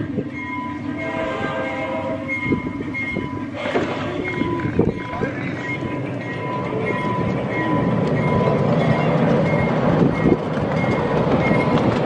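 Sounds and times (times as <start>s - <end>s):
train wheels clicking over rails: 2.4s - 12.0s.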